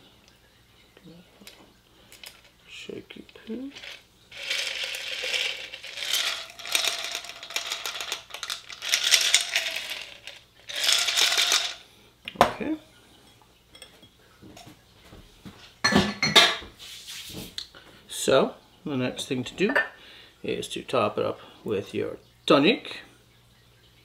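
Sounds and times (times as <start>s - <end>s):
ice rattling in glass jar: 3.5s - 11.8s.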